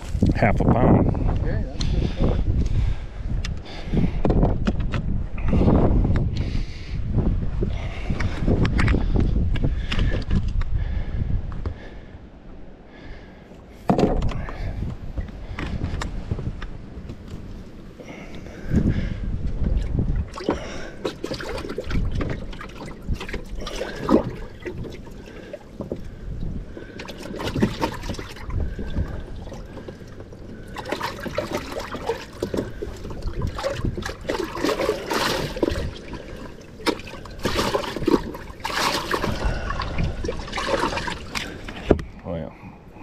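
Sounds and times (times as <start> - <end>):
water trickling and sloshing: 12.9 - 42.2
knocks on boat deck: 13.9 - 14.3.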